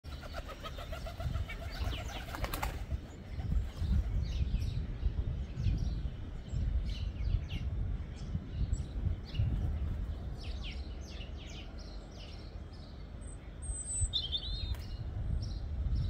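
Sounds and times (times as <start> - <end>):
dove wings flapping: 0.1 - 4.1
small birds chirping: 0.1 - 16.0.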